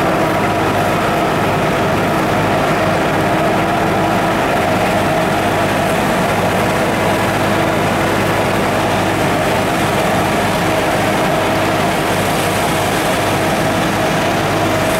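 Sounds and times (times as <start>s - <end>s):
sprayer engine drone: 0.0s - 14.9s.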